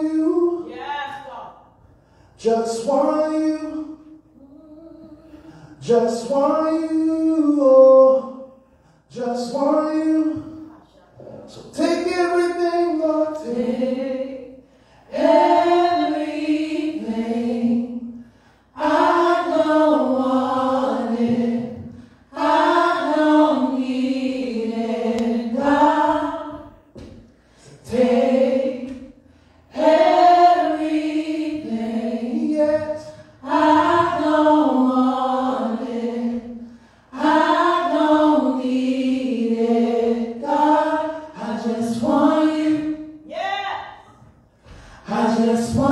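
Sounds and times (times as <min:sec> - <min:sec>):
choir singing unaccompanied: 0:12.9 - 0:43.3, 0:45.0 - 0:45.9.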